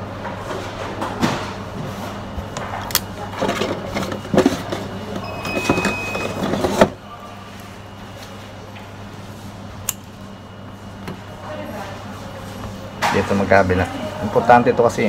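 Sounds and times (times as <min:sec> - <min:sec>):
steady low hum: 0:00.0 - 0:15.0
tools rustling and clattering: 0:03.4 - 0:06.9.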